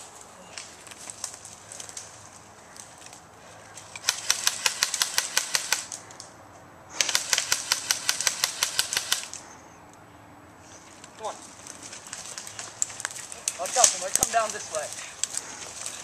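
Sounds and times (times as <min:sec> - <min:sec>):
airsoft gun full-auto bursts: 0:04.0 - 0:05.9, 0:07.0 - 0:09.4.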